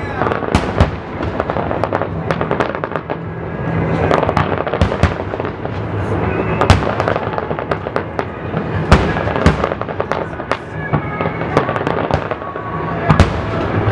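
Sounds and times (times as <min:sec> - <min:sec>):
fireworks banging and crackling: 0:00.0 - 0:13.9.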